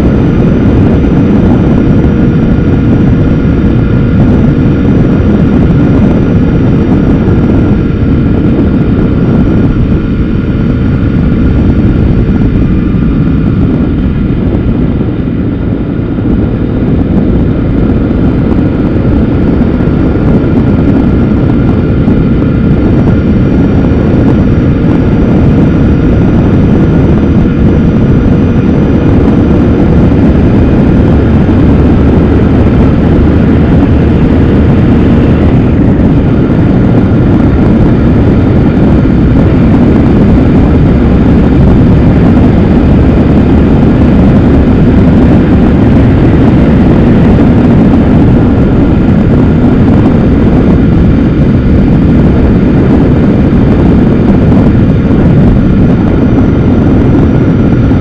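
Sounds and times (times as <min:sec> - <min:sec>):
motorcycle engine: 0:00.0 - 0:58.0
wind rush: 0:00.0 - 0:58.0.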